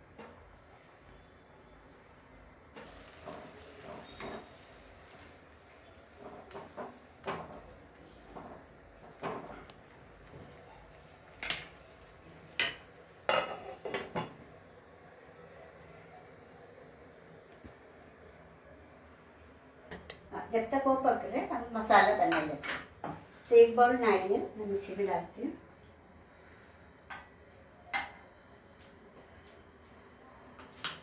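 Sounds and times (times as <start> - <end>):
curry simmering: 2.8 - 14.8.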